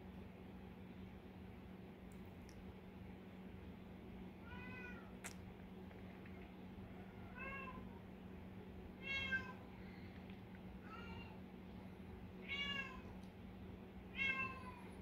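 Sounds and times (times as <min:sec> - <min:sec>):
cat meowing: 0:09.0 - 0:09.6, 0:12.4 - 0:13.1, 0:14.2 - 0:14.9.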